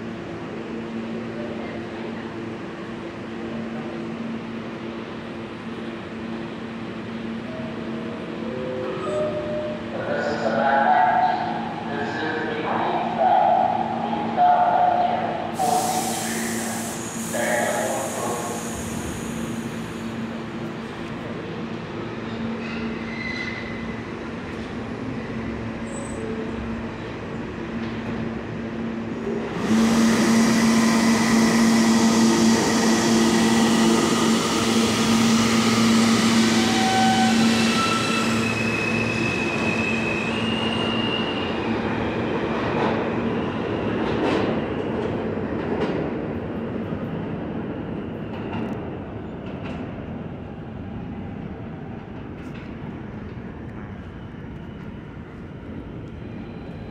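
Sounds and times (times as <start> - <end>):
subway train noise: 0.0 - 56.9
screeching wheels: 29.8 - 41.8.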